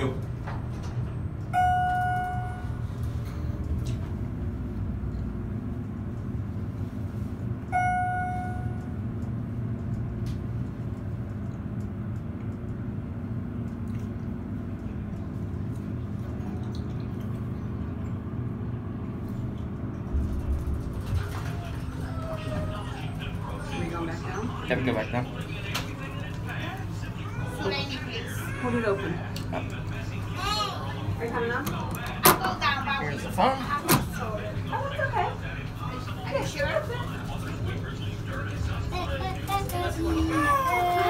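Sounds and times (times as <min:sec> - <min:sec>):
elevator car hum: 0:00.0 - 0:41.0
elevator chime: 0:01.5 - 0:03.0, 0:07.7 - 0:09.0.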